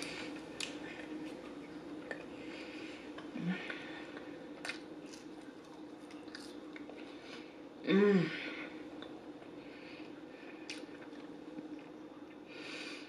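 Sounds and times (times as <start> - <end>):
mouth clicks and chewing: 3.2 - 7.0.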